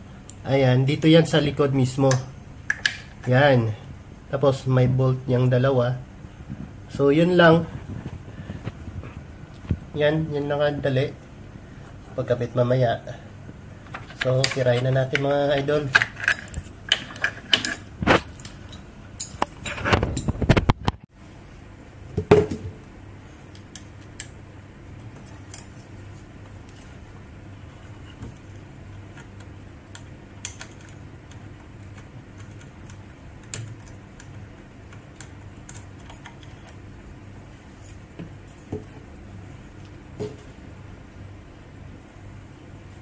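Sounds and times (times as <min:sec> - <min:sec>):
metal parts clinking and knocking: 0:13.9 - 0:20.4.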